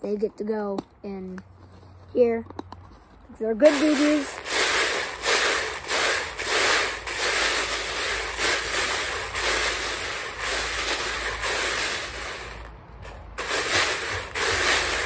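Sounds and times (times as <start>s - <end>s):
plastic pellets rattling in jar: 3.3s - 15.0s.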